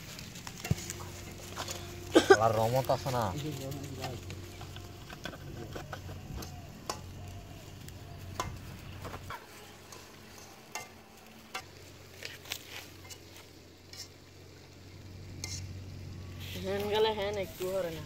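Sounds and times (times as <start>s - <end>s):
dry leaves crackling and rustling: 0.0s - 18.0s.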